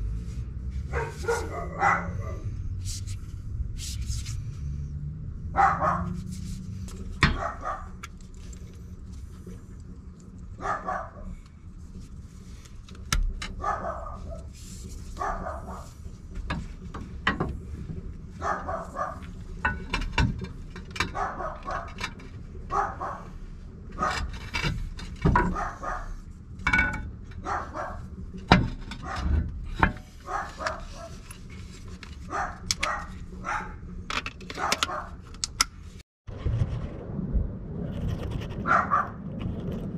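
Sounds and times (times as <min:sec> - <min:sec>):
dog barking: 0:00.9 - 0:02.4, 0:05.6 - 0:06.2, 0:07.3 - 0:08.0, 0:10.6 - 0:11.3, 0:13.6 - 0:14.5, 0:15.2 - 0:15.9, 0:18.4 - 0:19.2, 0:21.1 - 0:21.9, 0:22.7 - 0:23.3, 0:25.5 - 0:26.2, 0:27.4 - 0:28.0, 0:30.2 - 0:31.2, 0:32.3 - 0:33.8, 0:34.6 - 0:35.2, 0:38.6 - 0:39.2.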